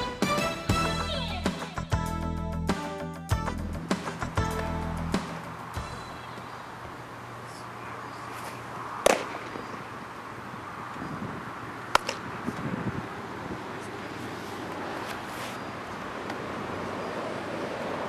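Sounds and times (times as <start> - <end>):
glove snap: 8.4 - 9.6
baseball popping into mitt: 9.0 - 9.6.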